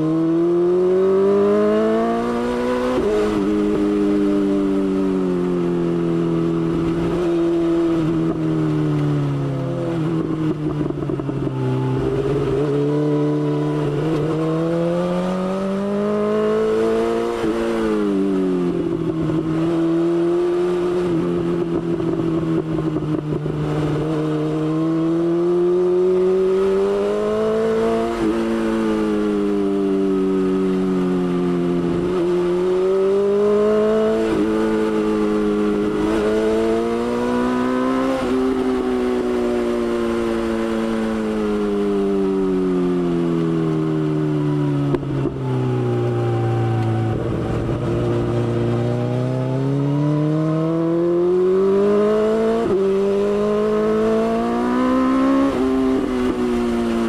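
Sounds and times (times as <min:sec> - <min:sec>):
motorcycle engine running: 0:09.2 - 0:14.7, 0:34.1 - 0:57.0.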